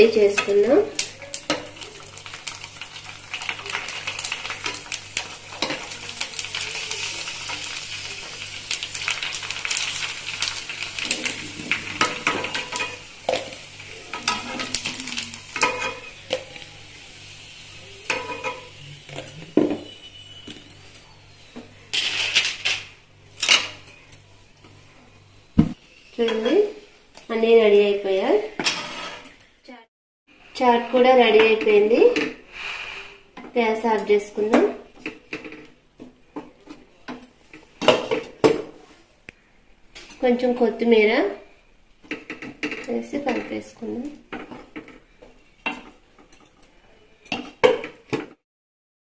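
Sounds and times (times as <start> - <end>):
oil sizzling in a pan: 0.0 - 29.3
metal spoon scraping a pan: 3.4 - 16.7, 18.0 - 24.0, 28.6 - 29.6.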